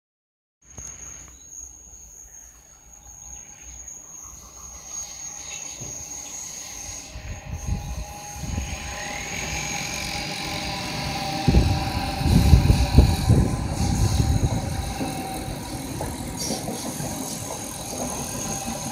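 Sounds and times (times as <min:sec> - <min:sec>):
steady high tone: 0:03.1 - 0:18.9
train wheels rumbling on rails: 0:04.2 - 0:18.9
whine rising in pitch: 0:04.8 - 0:16.1.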